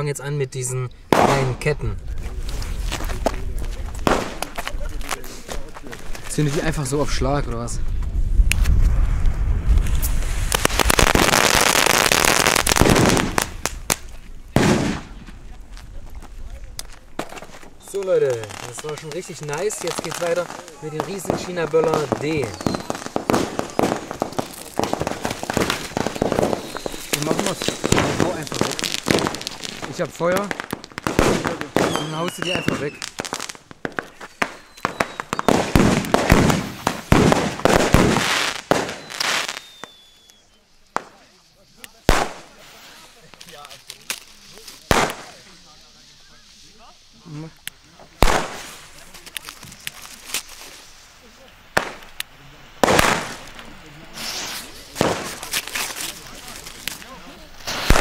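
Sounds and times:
firecracker chain cracking: 16.1s - 40.4s, 41.8s - 45.6s, 47.6s - 51.0s, 51.7s - 58.0s.

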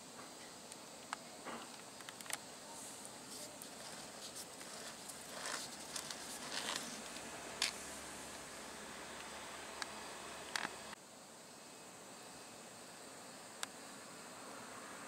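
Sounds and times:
steady hiss: 0.0s - 15.0s
short rustles: 2.7s - 7.8s.

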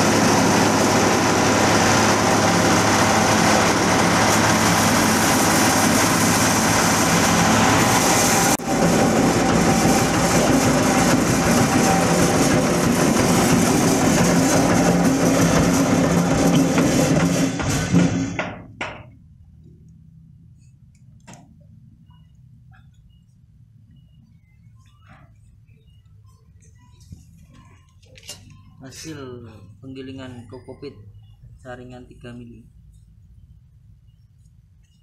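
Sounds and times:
diesel engine running: 0.0s - 18.8s
husk grinder shredding: 0.0s - 18.8s.

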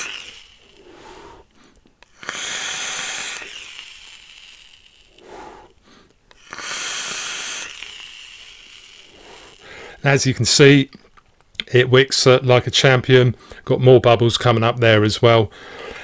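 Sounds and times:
breathy exhale: 0.0s - 3.6s, 5.1s - 8.1s, 8.7s - 10.0s, 15.5s - 16.0s
airy hiss of vape draw: 0.0s - 10.8s.

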